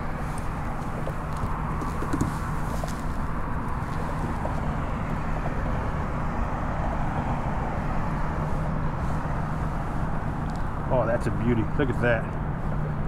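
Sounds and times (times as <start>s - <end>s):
road traffic drone: 0.0s - 13.0s.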